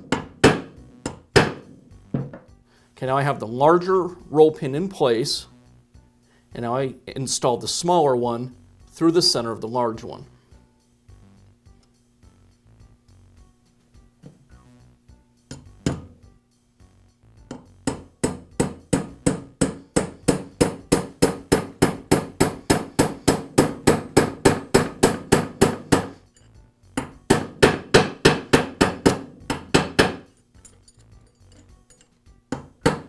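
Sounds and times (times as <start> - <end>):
hammer tapping metal pin: 15.5 - 16.2, 17.5 - 33.0.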